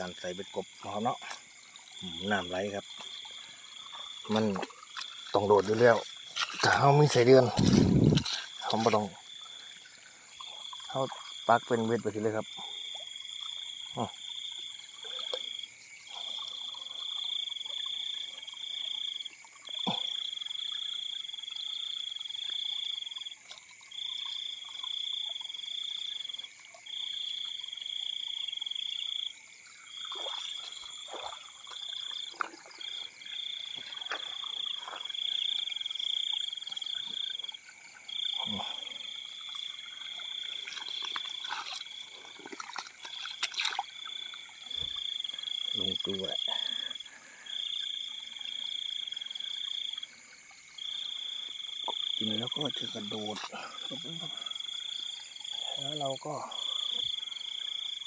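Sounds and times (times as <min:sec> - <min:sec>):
faint frog calls: 0:00.0 - 0:58.0
frog trilling call: 0:24.0 - 0:50.1.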